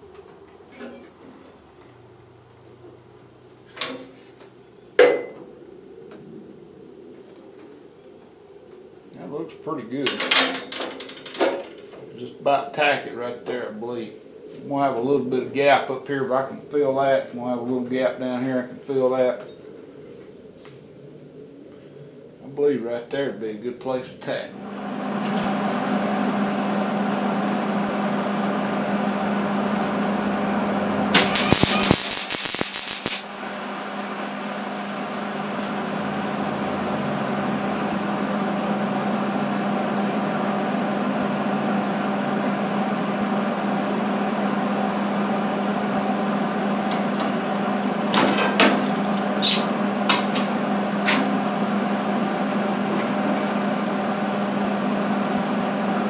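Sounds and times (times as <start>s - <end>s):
steady electrical hum: 0.0s - 56.0s
welding arc crackle: 31.1s - 35.8s
short tack weld bursts: 31.2s - 33.3s.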